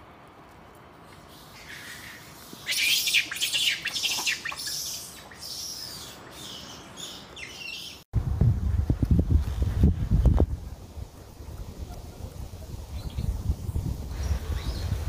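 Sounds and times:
macaques squeaky calls: 1.5 - 8.0
wind noise on microphone: 8.1 - 15.0.

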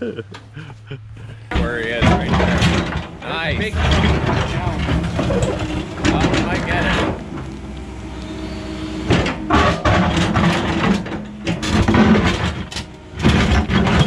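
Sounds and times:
excavator engine under load: 0.0 - 14.0
bucket scraping and clattering: 1.5 - 7.5, 9.1 - 14.0.

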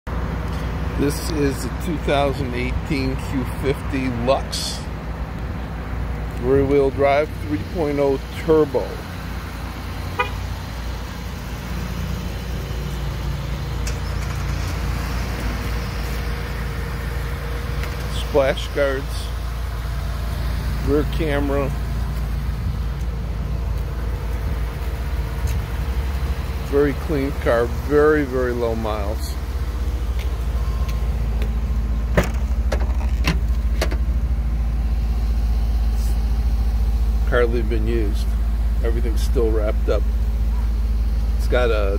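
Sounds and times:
car engine idling: 0.1 - 41.9
motor vehicle running: 0.1 - 41.9
trunk lid clicks and knocks: 32.1 - 34.1.

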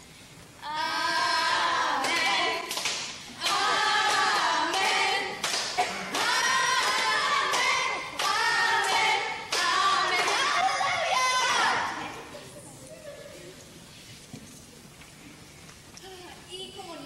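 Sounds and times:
children singing together: 0.6 - 12.2
hand claps: 2.0 - 10.6.

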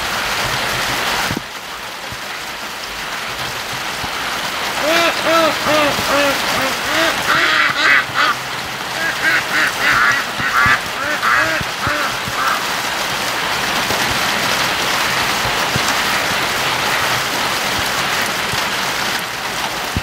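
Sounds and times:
heavy rain: 0.0 - 20.0
ducks quacking: 4.8 - 12.8.

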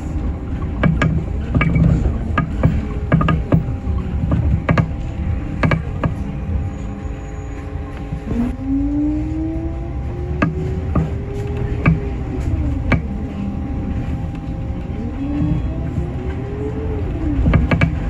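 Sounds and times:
bus drivetrain whine: 0.0 - 18.0
low engine and road rumble: 0.0 - 18.0.

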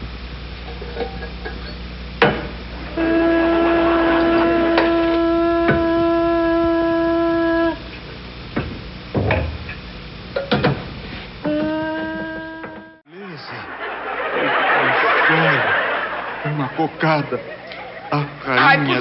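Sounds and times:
steady horn-like note: 2.8 - 7.9.

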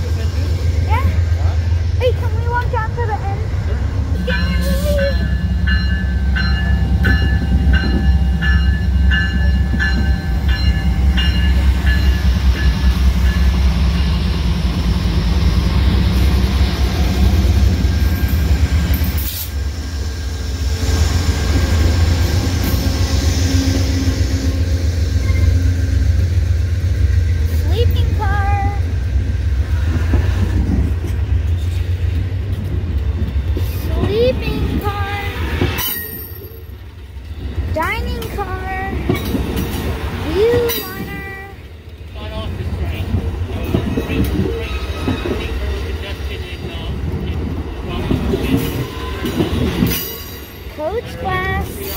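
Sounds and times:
diesel locomotive rumbling: 0.0 - 51.9
train wheels rumbling on rail: 0.0 - 51.9
locomotive bell ringing: 4.2 - 14.4, 23.7 - 26.0, 34.1 - 37.0, 37.8 - 41.7, 48.4 - 51.9.

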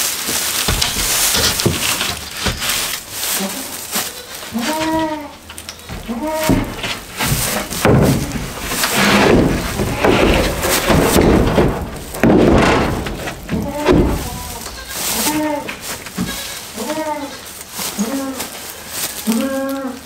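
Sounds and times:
wooden lid scraping and knocking: 0.3 - 3.6, 4.5 - 16.9.

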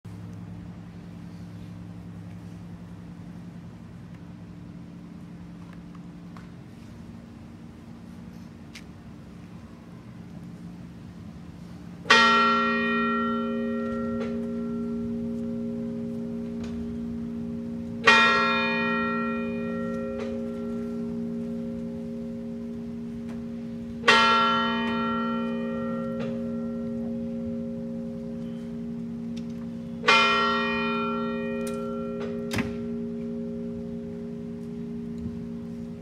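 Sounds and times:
large bell tolling: 12.0 - 36.0.

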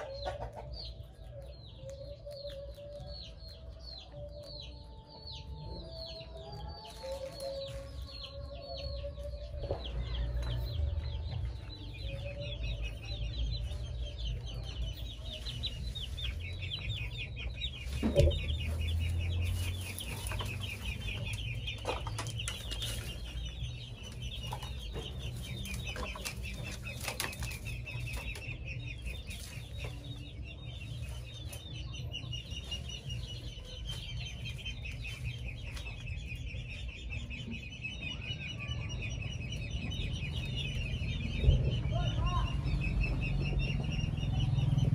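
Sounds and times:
leafy greens rustling: 6.8 - 9.2, 17.7 - 24.4.

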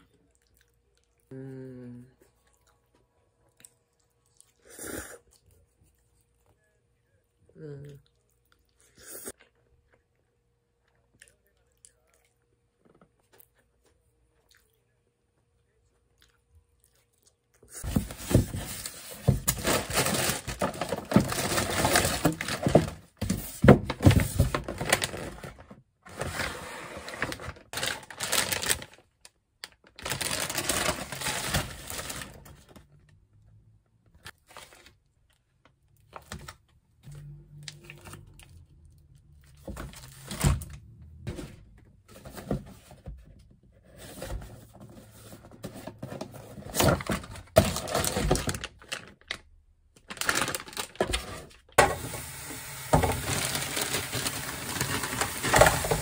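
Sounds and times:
plastic packaging crinkling: 17.8 - 23.1, 23.9 - 26.5, 27.1 - 33.0, 46.7 - 56.0.

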